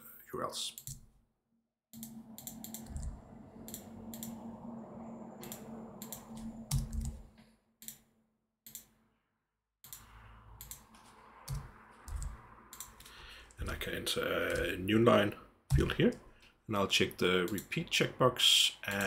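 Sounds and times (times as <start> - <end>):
keyboard keystrokes and clicks: 2.0 - 4.4, 5.4 - 7.2, 11.5 - 13.1.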